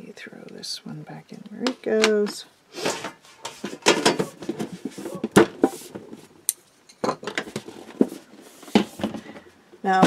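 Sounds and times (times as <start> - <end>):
rubbing and sliding noises: 2.7 - 6.4, 7.4 - 9.3.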